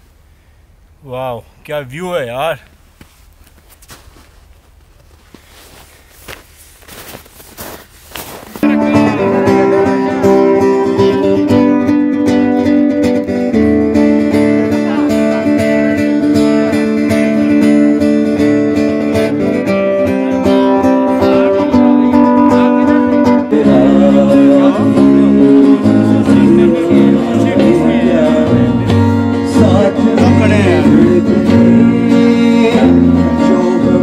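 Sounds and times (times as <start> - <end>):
strummed acoustic guitar: 8.6 - 34.0.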